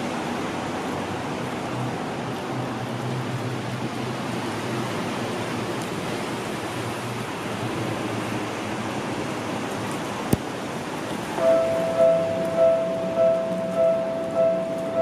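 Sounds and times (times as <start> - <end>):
rain falling: 0.0 - 15.0.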